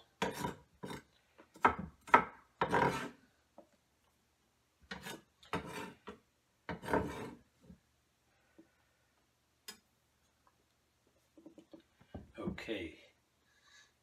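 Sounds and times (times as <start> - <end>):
knife scraping wooden cutting board: 0.1 - 3.2, 4.9 - 7.5.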